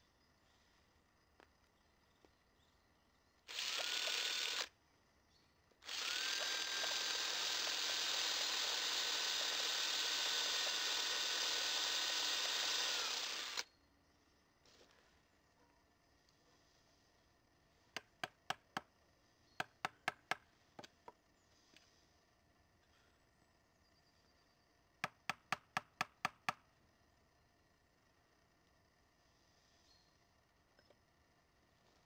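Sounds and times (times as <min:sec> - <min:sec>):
electric drill boring into wood: 0:03.5 - 0:04.7, 0:05.8 - 0:13.6.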